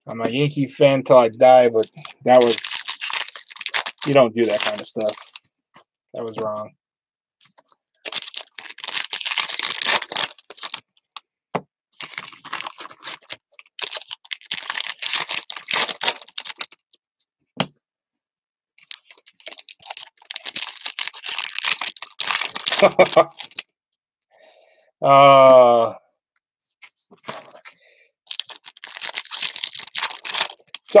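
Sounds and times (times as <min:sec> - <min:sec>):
foil wrappers crinkling and tearing: 0:01.8 - 0:05.4, 0:08.0 - 0:10.8, 0:12.0 - 0:16.8, 0:18.8 - 0:23.7, 0:27.2 - 0:31.0.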